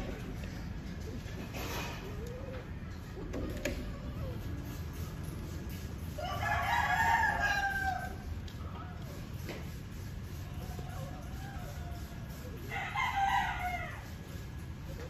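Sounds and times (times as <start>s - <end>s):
rooster crowing: 6.1s - 8.3s, 10.6s - 14.2s.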